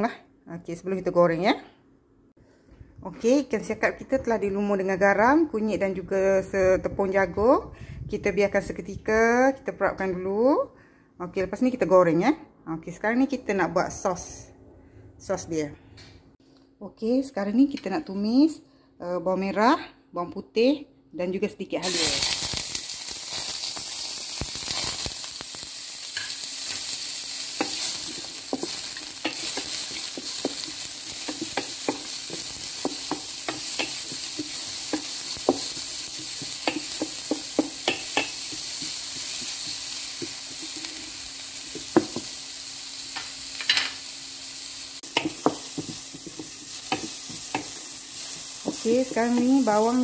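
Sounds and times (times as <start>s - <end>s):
food sizzling in hot oil: 21.8s - 50.0s.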